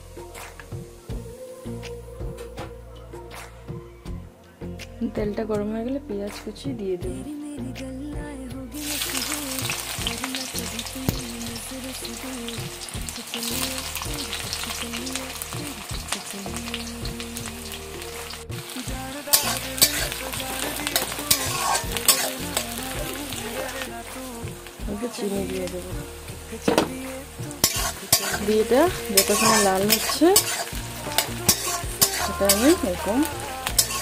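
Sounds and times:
onions sizzling in hot oil: 0:08.8 - 0:34.0
spatula scraping a pan: 0:20.9 - 0:22.7, 0:27.6 - 0:34.0.

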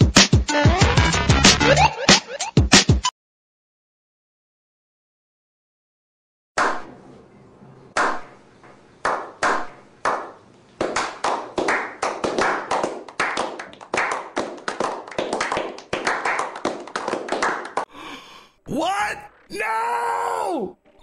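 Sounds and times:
hand clapping: 0:09.0 - 0:17.9.

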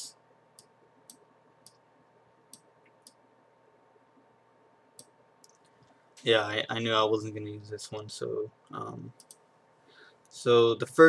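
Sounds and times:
computer mouse clicks: 0:05.0 - 0:06.0, 0:09.2 - 0:09.4.

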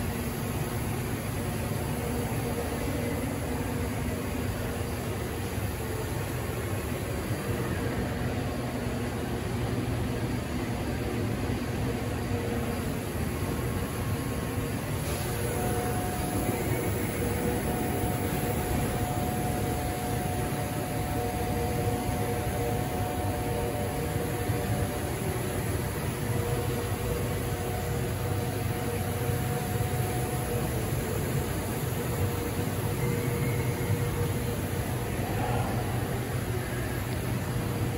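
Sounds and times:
machinery humming and hissing: 0:00.0 - 0:37.9
faint steady tone: 0:14.1 - 0:37.9.

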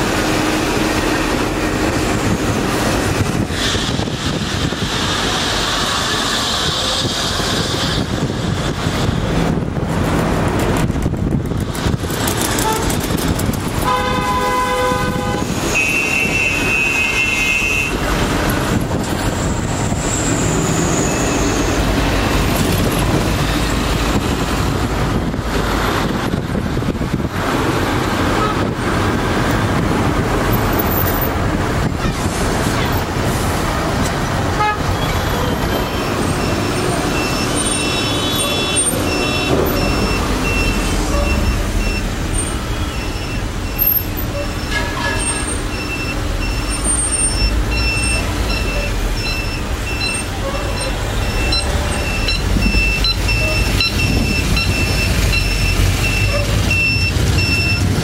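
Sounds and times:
traffic engines and road noise: 0:00.0 - 0:58.0
car horns honking: 0:12.5 - 0:13.2, 0:13.8 - 0:18.1, 0:28.3 - 0:28.7, 0:34.5 - 0:58.0.

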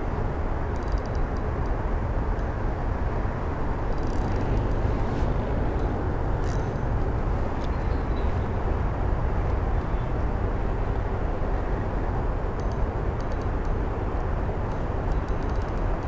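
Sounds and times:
wind buffeting microphone: 0:00.0 - 0:16.0
faint clicks: 0:12.6 - 0:13.8, 0:14.7 - 0:16.0.

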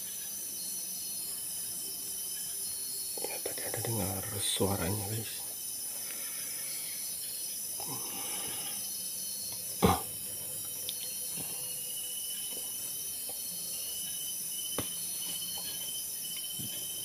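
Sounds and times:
crickets trilling: 0:00.0 - 0:17.0
high hiss: 0:00.0 - 0:17.0
faint ticks: 0:10.6 - 0:11.2.

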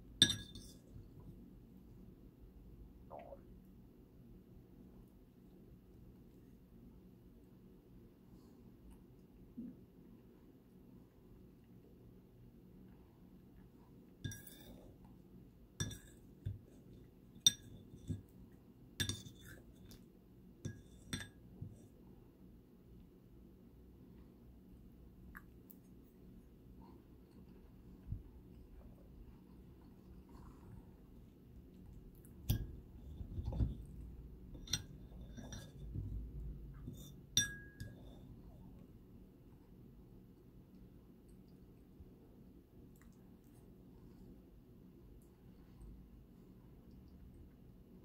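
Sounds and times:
fork clinking on ceramic plate: 0:00.2 - 0:00.8, 0:14.3 - 0:14.8, 0:15.8 - 0:16.2, 0:19.0 - 0:19.6, 0:20.7 - 0:21.4, 0:34.5 - 0:35.9, 0:36.8 - 0:38.2.

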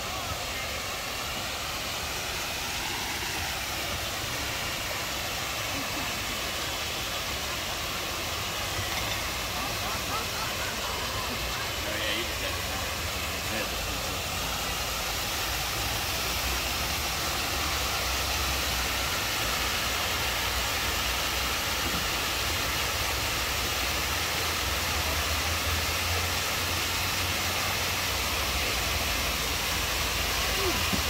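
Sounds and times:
waterfall pouring into pool: 0:00.0 - 0:31.0.

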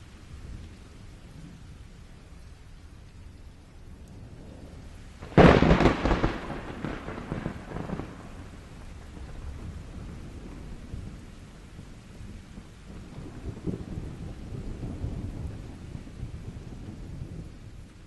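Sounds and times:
rain rumble: 0:00.0 - 0:18.0
thunderclap: 0:04.4 - 0:17.9.

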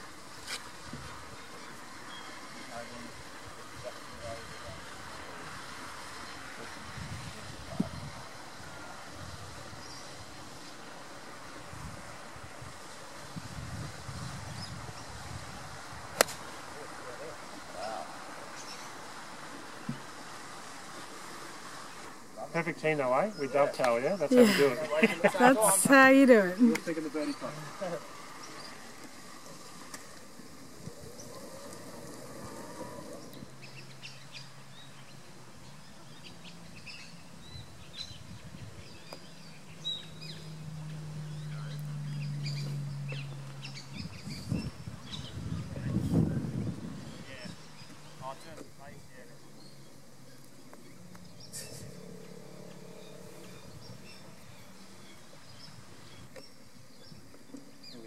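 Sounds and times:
birds chirping: 0:32.6 - 0:58.0
steady low hum: 0:49.5 - 0:56.2.

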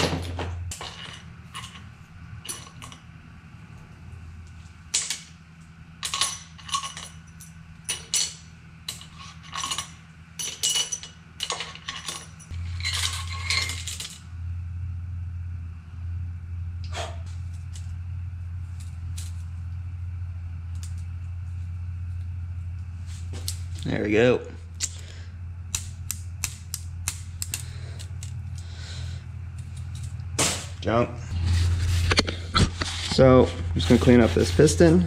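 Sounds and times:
steady low hum: 0:00.0 - 0:35.0
metallic clinks of tools and parts: 0:06.0 - 0:14.2.

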